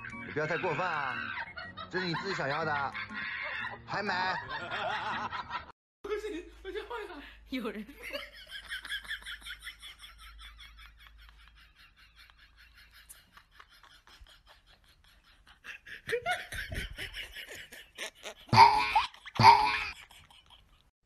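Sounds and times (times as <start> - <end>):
person laughing: 0.0 - 5.4, 8.2 - 20.9.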